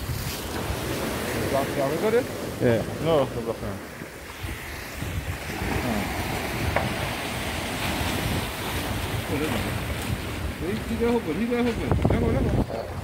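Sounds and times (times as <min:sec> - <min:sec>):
water slapping against rocks: 0:00.0 - 0:13.0
wind buffeting microphone: 0:00.0 - 0:13.0.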